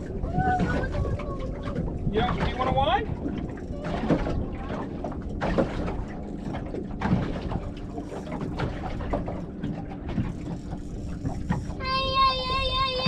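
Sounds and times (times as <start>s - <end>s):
wind buffeting the microphone: 0.0s - 9.4s
water lapping against a boat hull: 0.0s - 13.0s.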